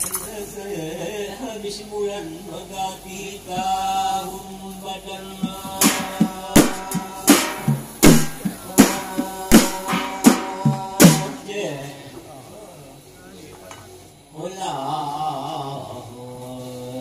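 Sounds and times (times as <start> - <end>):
man chanting into a microphone: 0.3 - 12.5, 14.3 - 17.0
frame drums beating: 5.4 - 11.4.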